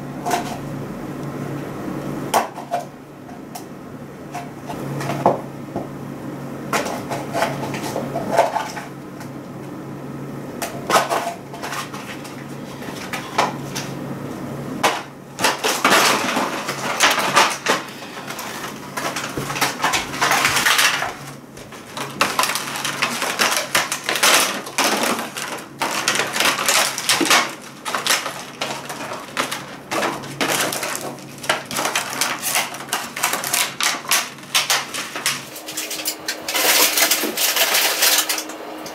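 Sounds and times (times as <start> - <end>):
plastic packaging crinkling: 15.7 - 38.5.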